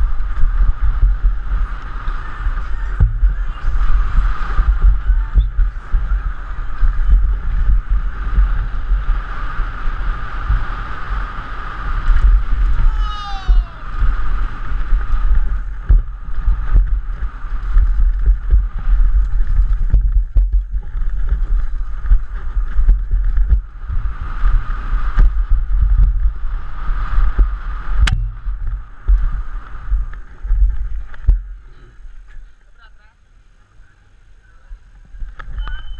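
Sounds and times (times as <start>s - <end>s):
bike rattling and knocking: 0.0s - 32.4s
wind buffeting camera: 0.0s - 32.6s, 34.7s - 35.9s
sharp knock: 28.0s - 28.6s.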